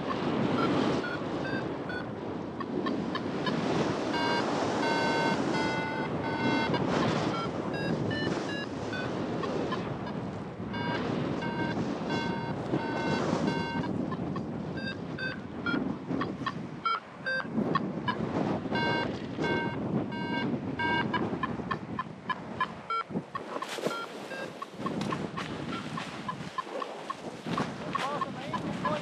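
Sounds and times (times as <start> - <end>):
wind noise: 0.0 - 29.0
rapid electronic beeps: 4.1 - 9.1, 10.8 - 14.0, 16.8 - 17.5, 18.1 - 21.2, 23.9 - 25.0.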